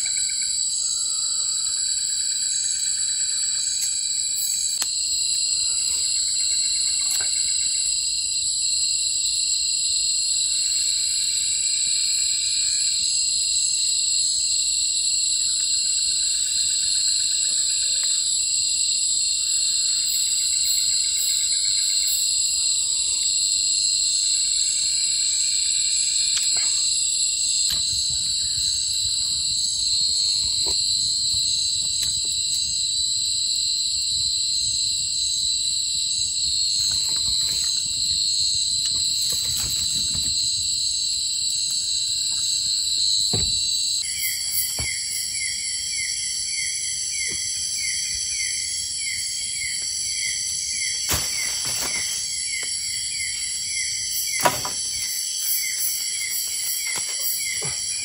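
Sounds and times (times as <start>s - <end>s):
high-pitched insect chorus: 0.0s - 58.0s
sharp knocks: 43.3s - 43.6s.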